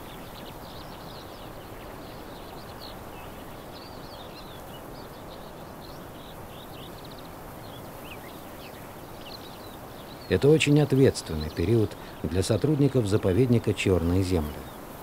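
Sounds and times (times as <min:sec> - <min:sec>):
open-air ambient hiss: 0:00.0 - 0:15.0
songbirds chirping and trilling: 0:00.0 - 0:15.0.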